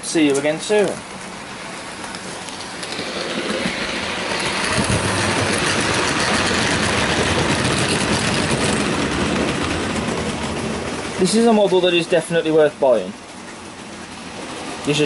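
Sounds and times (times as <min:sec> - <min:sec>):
model train wheels rolling: 0:00.0 - 0:15.0.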